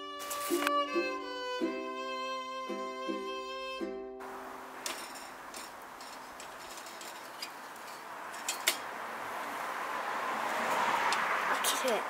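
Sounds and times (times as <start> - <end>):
pinecones burning in stove: 4.2 - 9.7.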